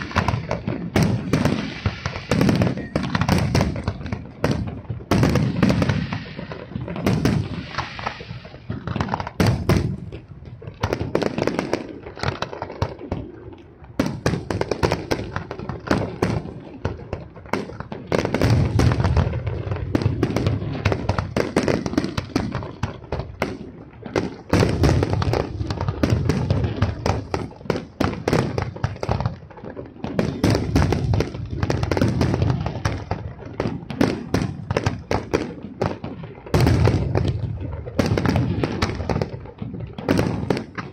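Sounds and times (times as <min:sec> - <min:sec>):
fireworks shells bursting: 0:00.0 - 0:13.2.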